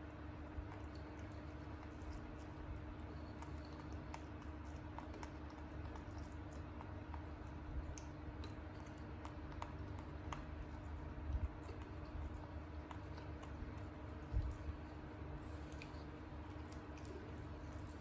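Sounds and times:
monkey chewing noodles: 0:00.0 - 0:18.0.

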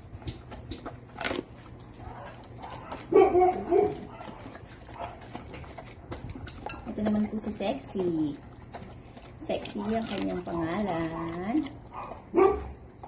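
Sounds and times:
dog chewing: 0:00.0 - 0:13.0
dog vocal sound: 0:00.3 - 0:13.0
teeth clicking against glass bowl: 0:03.5 - 0:12.2.

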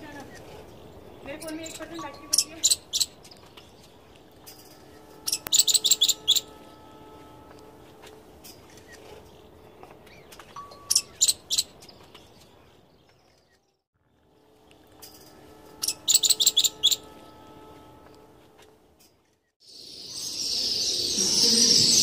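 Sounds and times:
squirrel chirping: 0:01.2 - 0:03.5, 0:05.3 - 0:06.5, 0:10.1 - 0:12.3, 0:15.8 - 0:17.1.

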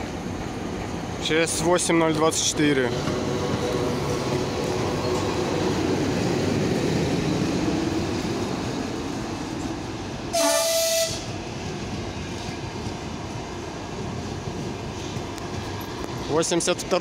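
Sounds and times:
train wheels rumbling on rails: 0:00.0 - 0:17.0
short high train horn blast: 0:10.3 - 0:11.4.

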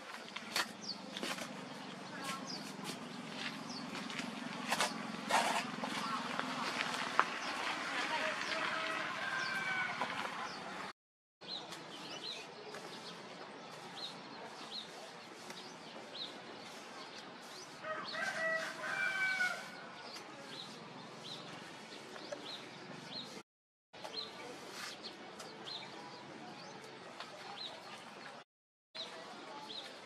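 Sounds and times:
small birds chirping: 0:00.2 - 0:05.2, 0:11.4 - 0:23.4.

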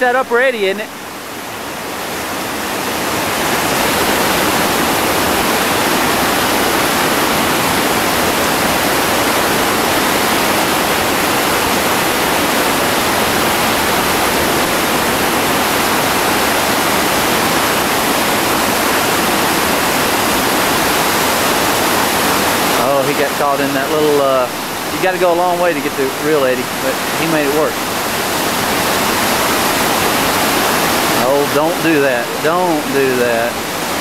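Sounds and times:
whitewater rapid rushing: 0:00.0 - 0:34.0.

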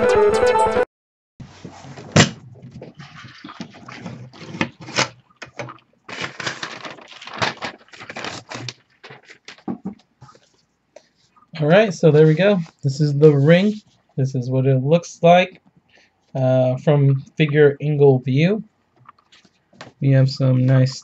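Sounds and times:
rustling: 0:01.4 - 0:11.5
clicks and knocks on hard plastic: 0:09.0 - 0:10.1.

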